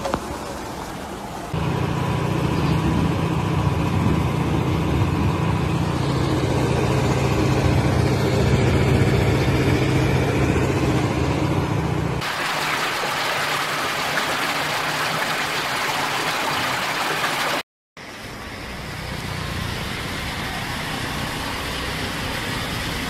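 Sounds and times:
heavy rain and floodwater rushing: 0.0s - 1.6s, 12.2s - 17.6s.

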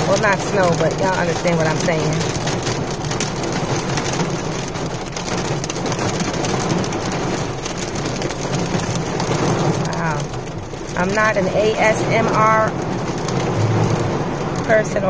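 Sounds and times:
rain and hail on car roof: 0.0s - 15.0s
low hum: 13.5s - 14.7s.

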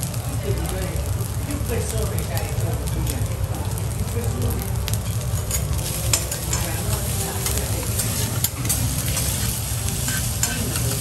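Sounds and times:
rice sizzling on a griddle: 0.0s - 11.0s
metal spatulas scraping steel plate: 5.4s - 11.0s.

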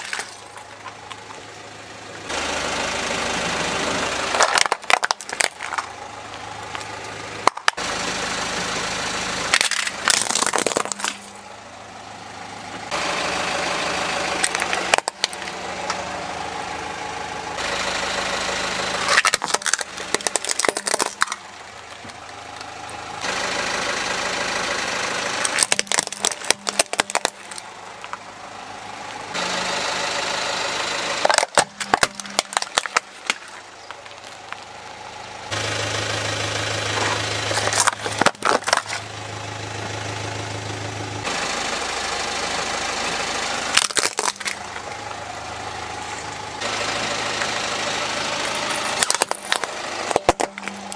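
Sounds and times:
plastic toys cracking under tyre: 0.0s - 1.4s, 4.3s - 6.0s, 6.6s - 7.8s, 9.5s - 11.4s, 14.4s - 16.0s, 19.0s - 22.7s, 25.4s - 28.2s, 31.2s - 34.7s, 37.0s - 39.1s, 43.7s - 44.9s, 48.5s - 50.9s
car engine idling: 0.0s - 50.9s.

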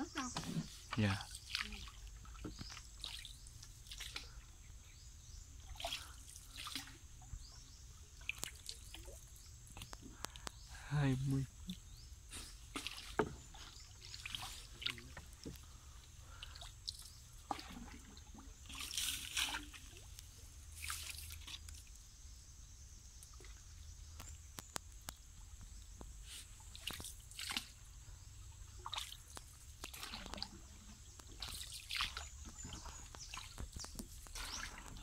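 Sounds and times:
paddle splashing in water: 0.4s - 4.4s, 5.6s - 7.1s, 8.2s - 10.3s, 12.3s - 21.8s, 26.3s - 27.8s, 28.8s - 35.0s.

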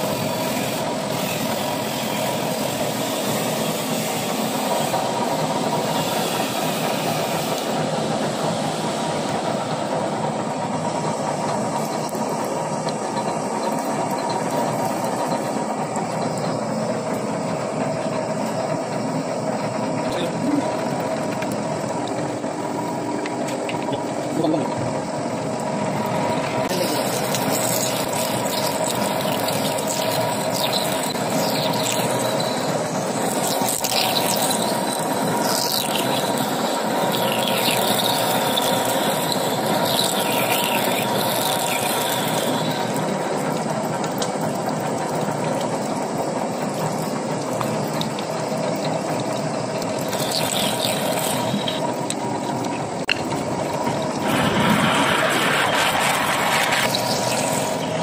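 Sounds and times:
metal lathe drilling whine: 0.0s - 58.0s
drill squealing: 26.6s - 43.3s, 49.8s - 52.1s.

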